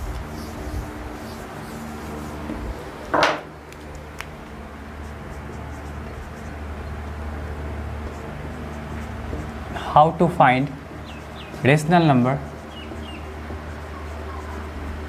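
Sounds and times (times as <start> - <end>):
faint marker strokes on whiteboard: 0.0 - 2.7, 4.9 - 6.6, 11.1 - 15.0
steady low hum: 0.0 - 15.0.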